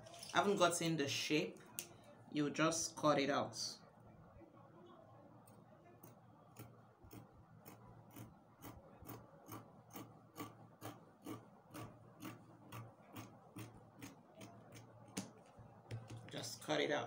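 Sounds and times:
scissors snipping cloth: 0:06.0 - 0:15.4.

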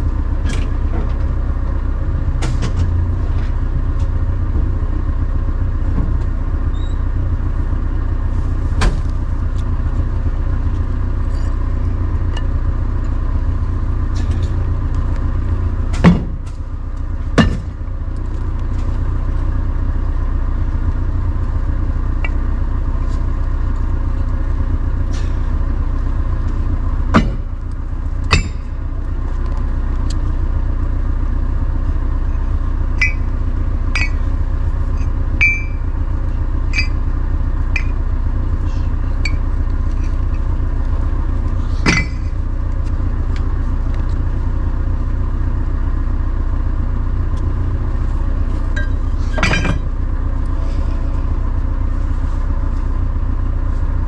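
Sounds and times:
vehicle engine running: 0:00.0 - 0:54.0
short squeaks: 0:06.7 - 0:07.1, 0:11.3 - 0:11.7, 0:36.7 - 0:37.0
loud sharp knocks: 0:27.1 - 0:27.5.

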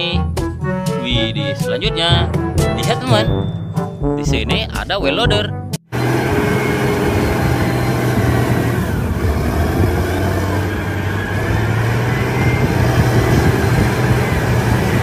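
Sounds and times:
diesel engine running under load: 0:05.9 - 0:15.0.

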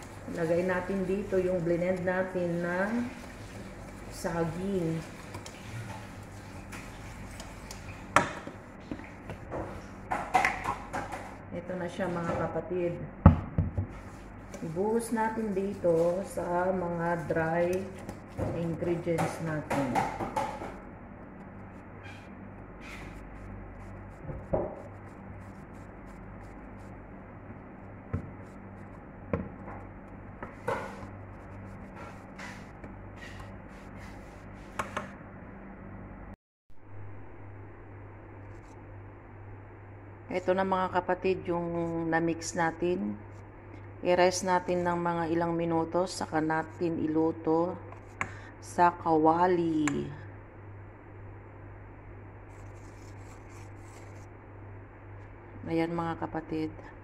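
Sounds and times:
batter being stirred: 0:00.0 - 0:11.4, 0:13.9 - 0:27.2, 0:27.8 - 0:35.0, 0:52.4 - 0:54.4
steady low hum: 0:00.0 - 0:57.0.

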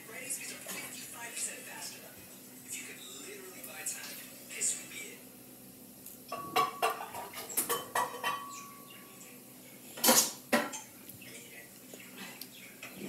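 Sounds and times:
dishes and utensils clattering: 0:06.3 - 0:09.0, 0:09.9 - 0:11.0.

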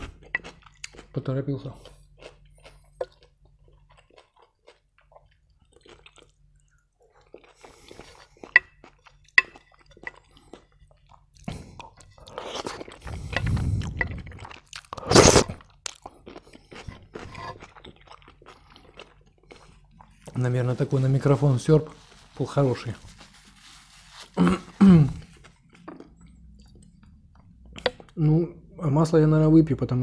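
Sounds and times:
soft chewing: 0:00.0 - 0:28.3
loud slurping from a spoon: 0:12.4 - 0:15.6
person speaking: 0:20.3 - 0:23.2, 0:24.1 - 0:25.4.

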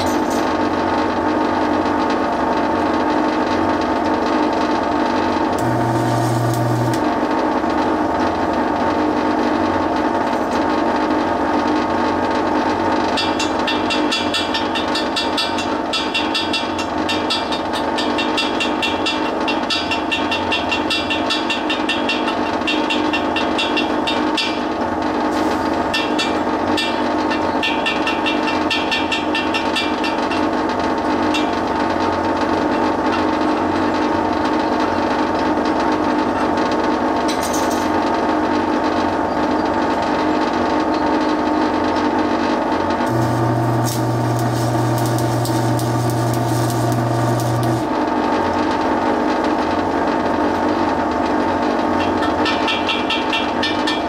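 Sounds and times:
cooling fan humming: 0:04.0 - 0:13.2, 0:25.0 - 0:27.3, 0:42.8 - 0:49.0
crackling: 0:05.6 - 0:07.1, 0:43.1 - 0:47.9.

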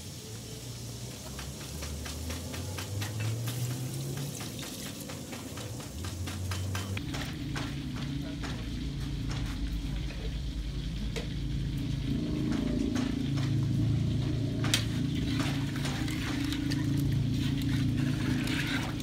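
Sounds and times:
steady low hum: 0:06.1 - 0:19.0
spoon scraping metal pot: 0:17.9 - 0:19.0.

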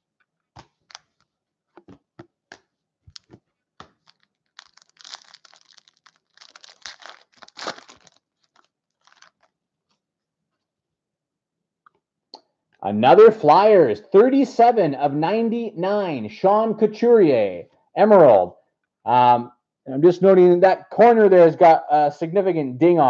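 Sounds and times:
wrapper tearing and crinkling: 0:00.8 - 0:01.2, 0:03.1 - 0:09.6.

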